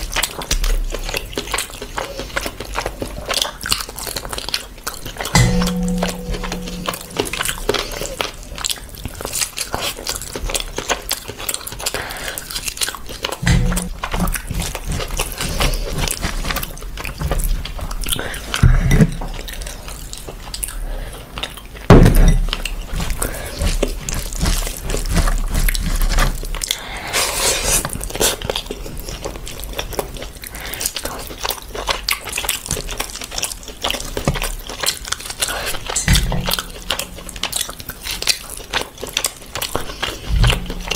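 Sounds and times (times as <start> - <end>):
wet chewing: 0.0 - 40.9
wet squishing of food by hand: 0.0 - 40.9
glass bowl knock: 5.4 - 7.6, 13.4 - 14.0.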